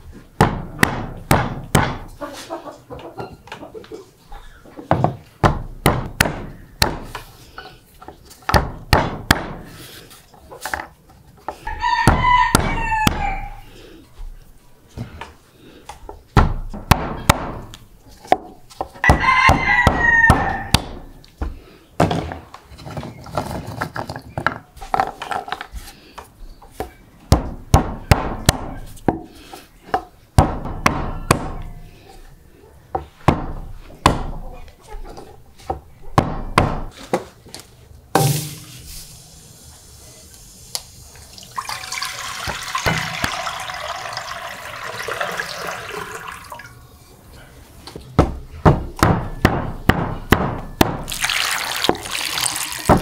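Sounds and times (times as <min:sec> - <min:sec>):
sharp knocks and thuds: 0:00.4 - 0:02.1, 0:04.9 - 0:07.2, 0:08.4 - 0:09.7, 0:12.0 - 0:13.3, 0:16.3 - 0:23.1, 0:27.3 - 0:29.3, 0:30.4 - 0:31.6, 0:33.2 - 0:34.4, 0:35.7 - 0:37.3, 0:48.1 - 0:51.1
rooster crowing: 0:11.7 - 0:13.6, 0:19.0 - 0:20.8.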